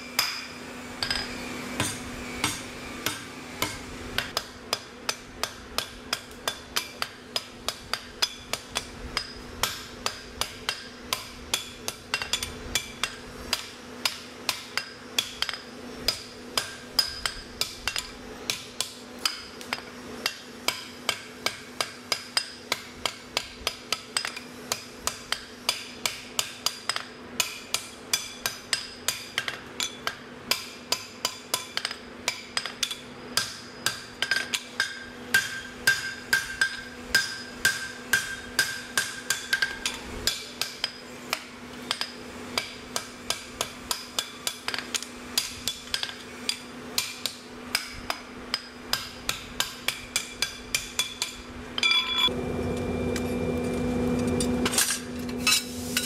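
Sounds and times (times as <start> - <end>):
hammer striking anvil ringing: 0.2 - 13.6, 26.6 - 41.0, 48.5 - 52.4.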